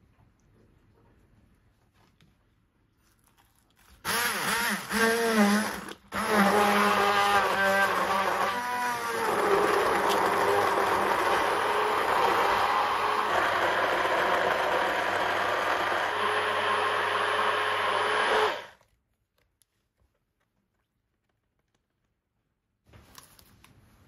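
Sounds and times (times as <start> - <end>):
blender blade chopping vegetables: 4.0 - 18.8
immersion blender motor whine: 4.1 - 18.8.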